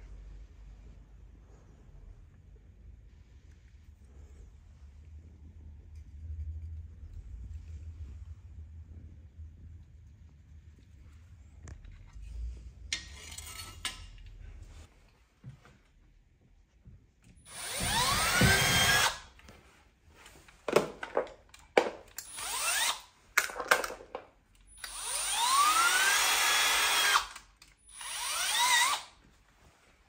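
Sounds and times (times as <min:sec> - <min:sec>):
cordless drill boring into plaster: 0:17.5 - 0:19.3, 0:22.2 - 0:23.1, 0:24.7 - 0:29.2.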